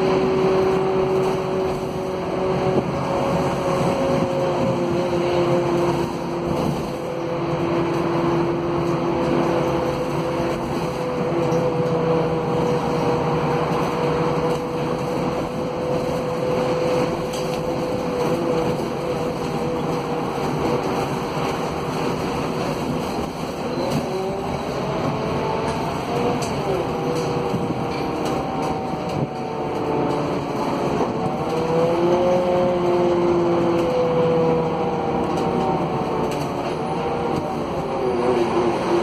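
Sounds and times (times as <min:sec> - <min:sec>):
bus engine and road hum: 0:00.0 - 0:39.0.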